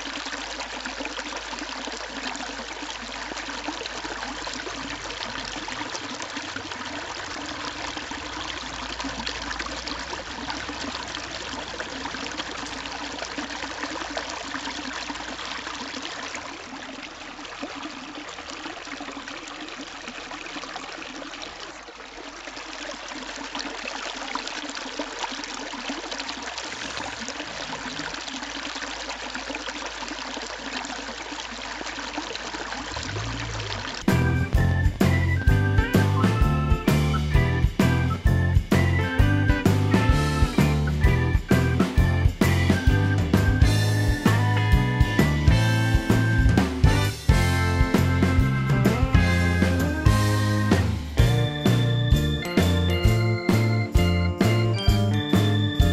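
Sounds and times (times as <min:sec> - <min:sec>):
fountain splashing into basin: 0:00.0 - 0:55.9
loud music: 0:34.1 - 0:55.9.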